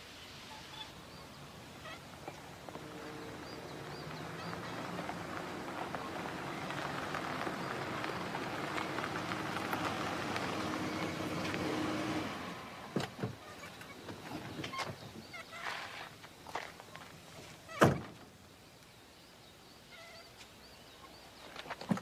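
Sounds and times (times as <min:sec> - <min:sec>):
car driving on gravel: 0:00.8 - 0:18.4.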